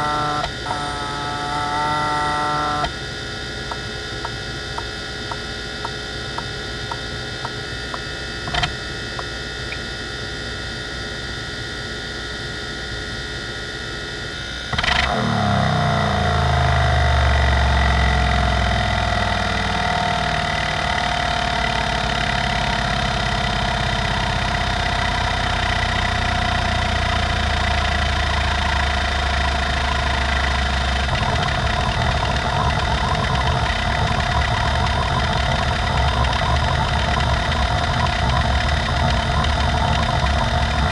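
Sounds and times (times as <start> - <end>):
hard drive spindle whine: 0.0 - 40.9
sharp click: 8.5 - 9.8
hard drive head ticks: 31.0 - 40.9.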